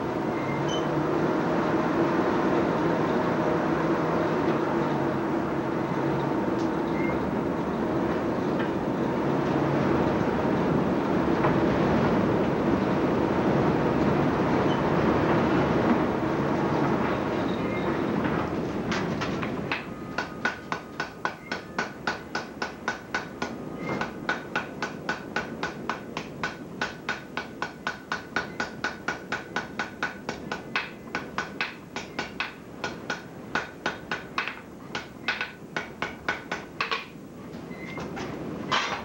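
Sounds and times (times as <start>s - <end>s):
steady rushing noise: 1.0s - 21.1s
hammer striking iron on anvil: 19.7s - 37.1s.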